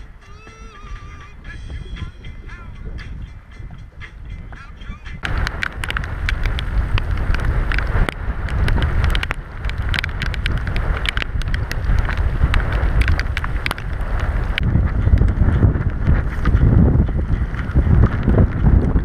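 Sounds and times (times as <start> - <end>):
gusty wind buffeting microphone: 0.0 - 19.0
raindrops ticking: 0.2 - 19.0
rain hiss: 5.2 - 16.5.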